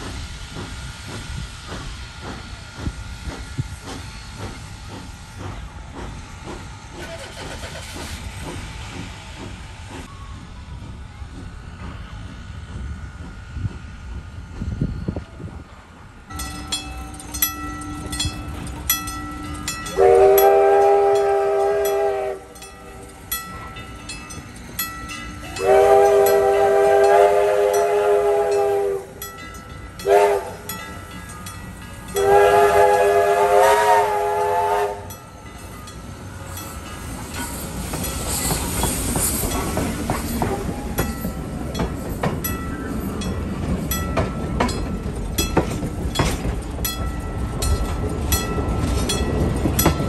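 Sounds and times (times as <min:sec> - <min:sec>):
steam hissing: 0:00.0 - 0:15.7, 0:16.3 - 0:43.8
steam locomotive chuffing: 0:00.0 - 0:50.0
train rumble: 0:00.0 - 0:50.0
crossing signal bell dinging: 0:16.3 - 0:33.5
steam locomotive whistle: 0:19.2 - 0:22.7, 0:25.4 - 0:29.2, 0:30.0 - 0:30.8, 0:32.1 - 0:35.2.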